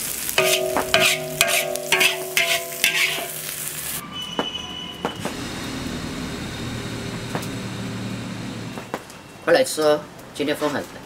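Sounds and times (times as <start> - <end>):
food sizzling: 0.0 - 4.0
metal spatula striking wok: 0.4 - 3.8.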